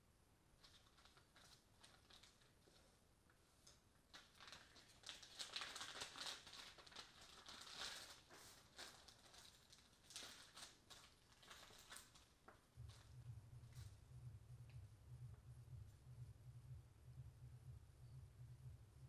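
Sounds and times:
low steady hum: 0.0 - 19.0
plastic bag crinkling: 0.6 - 2.9, 3.6 - 13.1.

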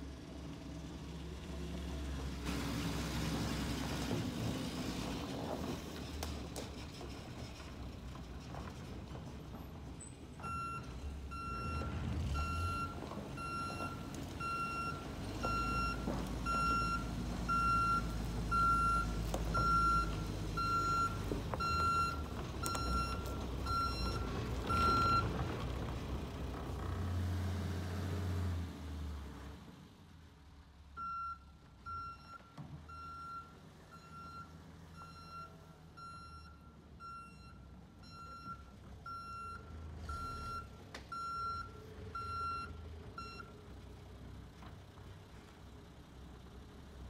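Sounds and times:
truck engine running: 0.0 - 28.6
backup alarm beeping: 10.5 - 25.2.

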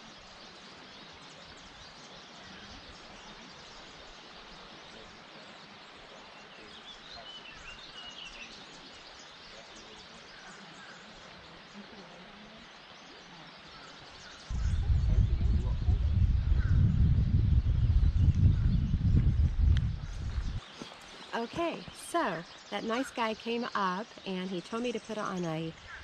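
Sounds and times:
stream flowing over riffles: 0.0 - 14.5, 20.6 - 26.0.

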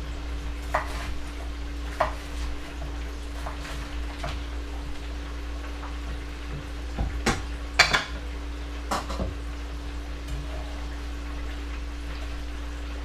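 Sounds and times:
steady low hum: 0.0 - 13.0
dishes clinking on a counter: 7.3 - 8.2, 8.9 - 9.4.

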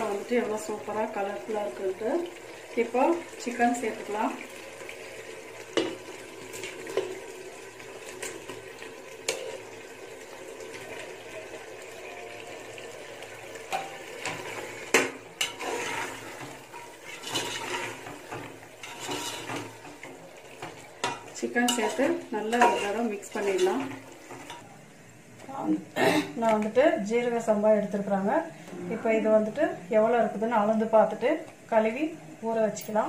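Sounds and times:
ladle stirring sizzling mixture: 0.0 - 33.0
metal ladle clinking on pot: 16.7 - 19.9, 20.6 - 24.6.

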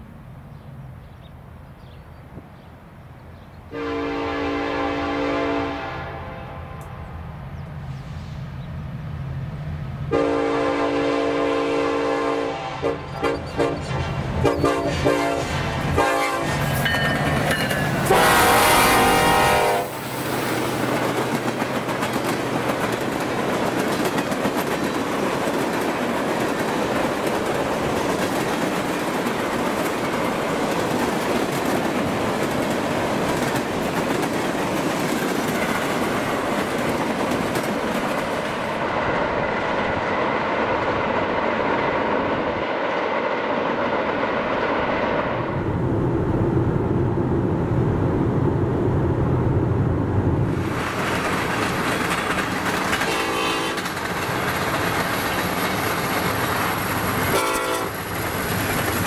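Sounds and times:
locomotive horn blast: 3.7 - 7.0, 10.1 - 16.7, 18.1 - 20.0, 53.0 - 53.9, 57.3 - 58.0
diesel locomotive engines running: 3.7 - 59.0
tank cars rolling on rails: 50.7 - 59.0.

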